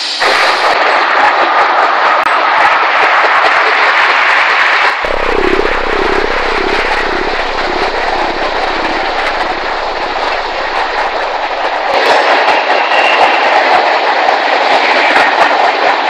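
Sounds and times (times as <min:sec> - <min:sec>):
wavering mid-pitched tone: 0:05.0 - 0:12.2
freight train rumbling past: 0:05.0 - 0:13.6
low engine hum: 0:05.1 - 0:12.0.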